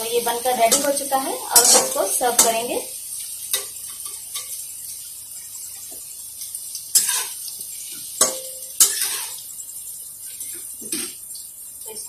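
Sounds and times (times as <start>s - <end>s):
spatula scraping in metal pan: 0.6s - 2.7s, 6.9s - 9.5s
spatula clanking against pan: 0.7s - 2.7s, 8.2s - 9.4s.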